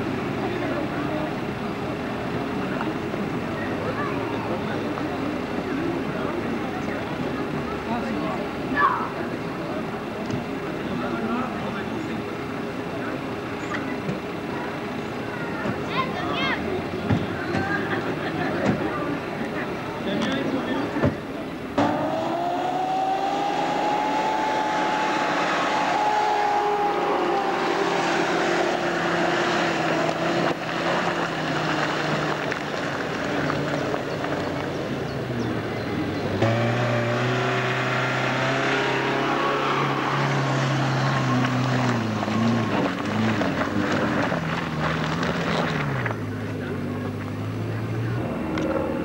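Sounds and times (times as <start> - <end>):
engine running under load: 18.2 - 49.0.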